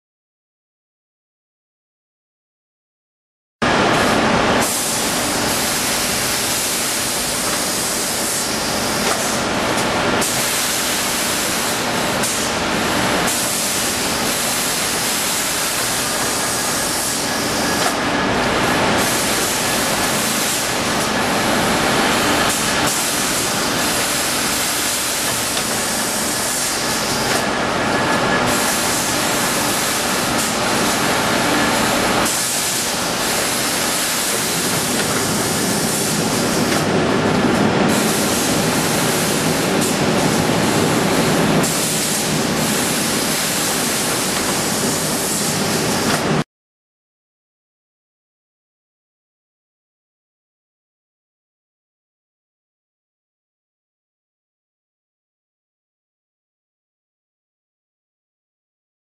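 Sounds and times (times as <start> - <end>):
machine hissing: 3.9 - 46.4.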